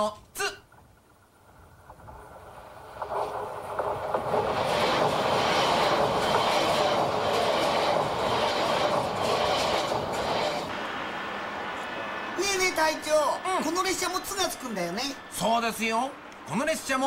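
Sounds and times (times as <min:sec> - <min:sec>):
train cars clattering: 0:00.7 - 0:16.9
train wheels rushing: 0:01.6 - 0:17.0.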